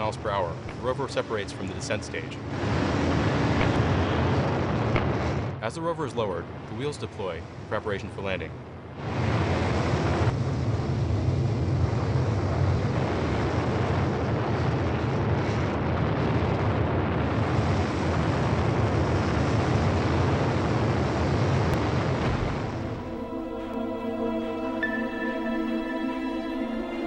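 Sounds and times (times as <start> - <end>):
rocket thrusters firing: 0.0 - 5.6
low rumble: 0.0 - 6.8, 8.4 - 27.0.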